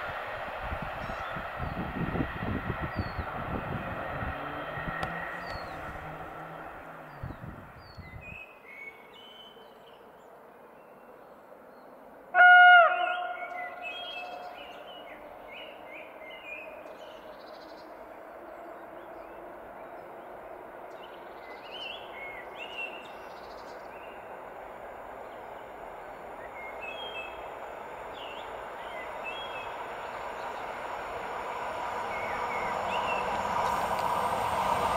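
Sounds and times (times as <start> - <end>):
electric train running noise: 0.0 - 7.8, 18.0 - 34.9
birds chirping: 2.8 - 34.9
train horn blast: 12.3 - 14.8.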